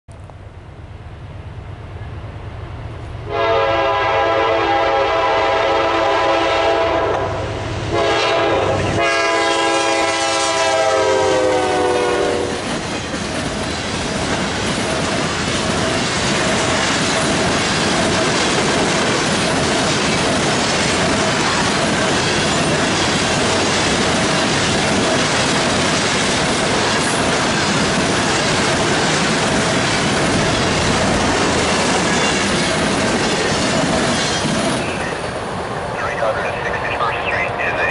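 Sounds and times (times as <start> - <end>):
locomotive horn chords: 3.3 - 12.5
train cars rolling on rails: 7.6 - 37.9.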